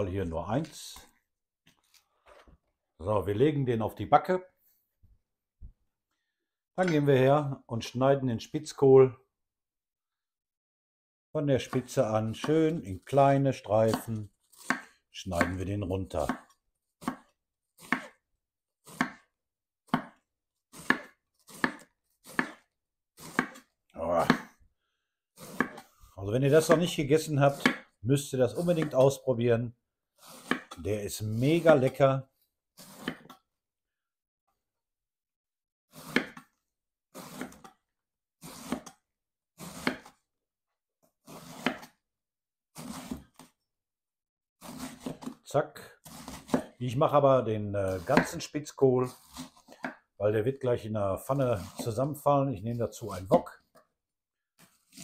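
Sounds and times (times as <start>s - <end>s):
knife slicing cabbage: 11.6s - 18.2s, 18.8s - 24.6s, 25.4s - 27.9s, 28.5s - 29.2s, 30.2s - 32.0s, 32.7s - 33.5s, 35.9s - 37.8s, 38.4s - 39.0s, 39.6s - 40.3s, 41.2s - 42.0s, 42.7s - 43.6s, 44.6s - 50.2s, 51.2s - 53.4s, 54.6s - 55.0s.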